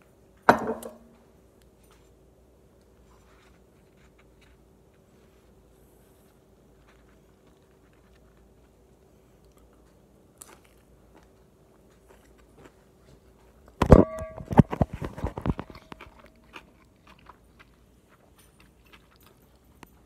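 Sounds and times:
faint chewing: 0:01.6 - 0:13.8, 0:14.4 - 0:20.0
phone being handled: 0:13.8 - 0:16.0.

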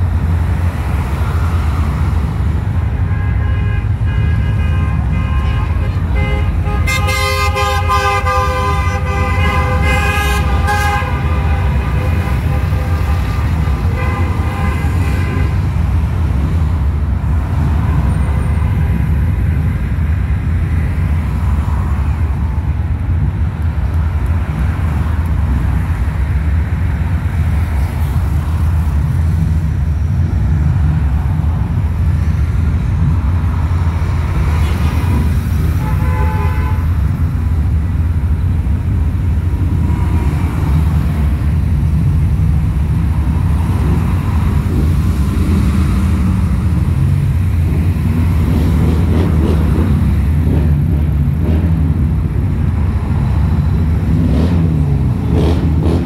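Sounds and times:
traffic rumble: 0:00.0 - 0:56.0
vehicle horn long blast: 0:03.0 - 0:15.6, 0:35.8 - 0:36.9.

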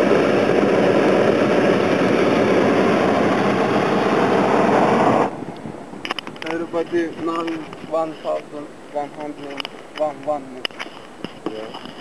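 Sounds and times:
propane burner blast: 0:00.0 - 0:05.8.

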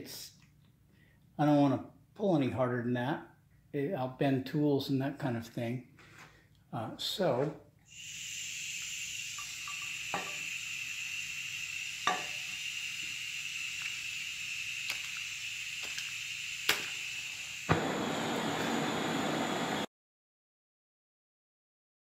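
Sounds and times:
gas torch flame hissing: 0:07.9 - 0:19.9.

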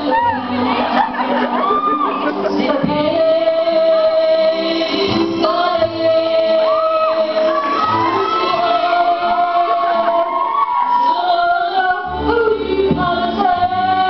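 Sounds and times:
instrumental backing music: 0:00.0 - 0:14.0
woman singing through microphone: 0:00.0 - 0:14.0.

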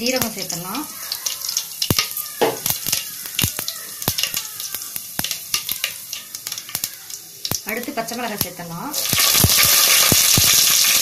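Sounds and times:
oil popping and crackling: 0:00.0 - 0:11.0
seeds sizzling in hot oil: 0:00.0 - 0:11.0.

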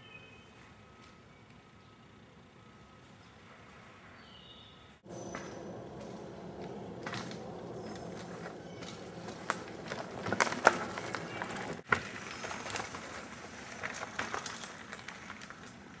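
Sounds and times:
bike tyres on dirt trail: 0:04.2 - 0:16.0
bike clacking over rocks: 0:05.4 - 0:15.9.

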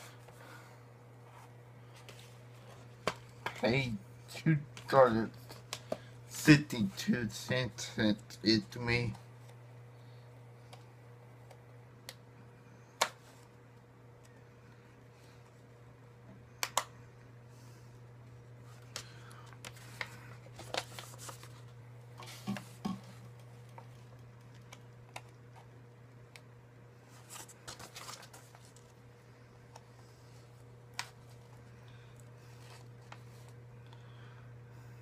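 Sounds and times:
low electrical hum: 0:00.0 - 0:35.0
package rustling: 0:19.0 - 0:21.8, 0:27.1 - 0:29.0.

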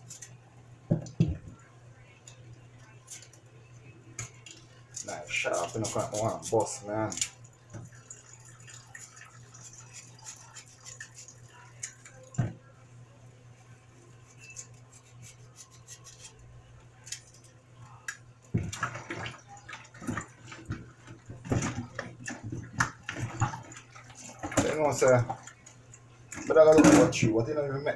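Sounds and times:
water splashing and clatter: 0:18.6 - 0:25.7.

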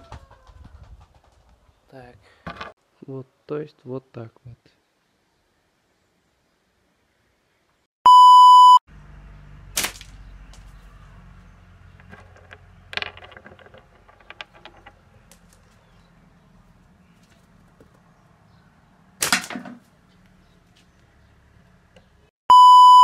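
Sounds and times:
electronic beep: 0:08.1 - 0:08.8, 0:22.5 - 0:23.0
sharp snap: 0:09.8 - 0:10.1, 0:19.2 - 0:19.6.

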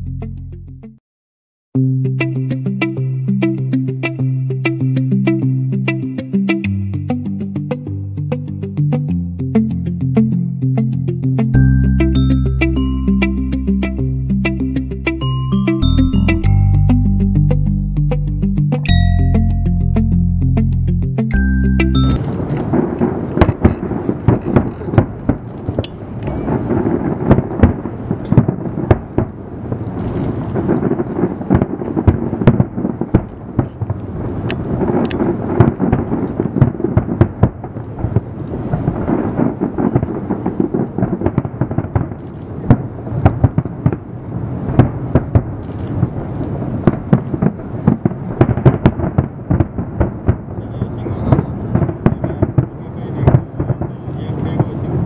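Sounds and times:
fireworks bursting: 0:21.9 - 0:55.0.

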